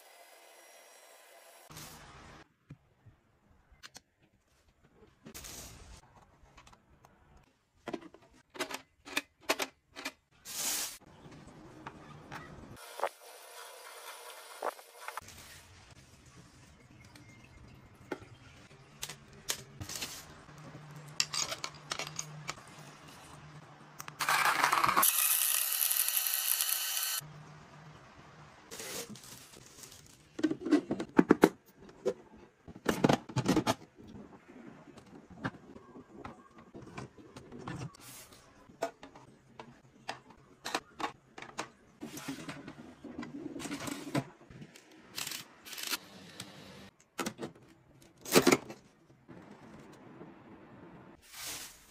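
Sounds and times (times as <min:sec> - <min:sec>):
plastic organizers clicking and knocking: 0:07.8 - 0:10.3, 0:30.4 - 0:33.9, 0:38.8 - 0:41.8
blender motor whirring: 0:24.2 - 0:27.2.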